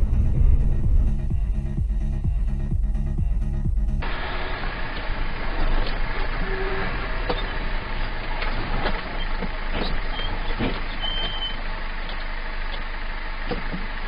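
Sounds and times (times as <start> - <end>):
vehicle engine and road noise: 0.0 - 14.0.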